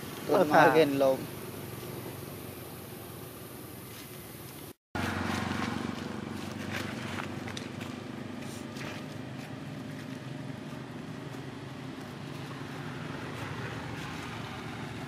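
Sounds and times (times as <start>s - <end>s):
background hiss: 0.0s - 4.8s
low engine drone: 5.0s - 15.0s.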